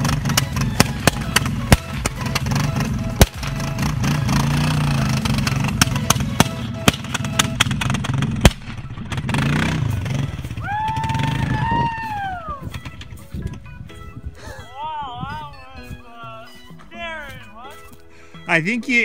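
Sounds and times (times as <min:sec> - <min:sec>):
engine backfire pops: 0:00.0 - 0:10.6
atv engine revving in water: 0:03.6 - 0:05.9, 0:09.1 - 0:10.4.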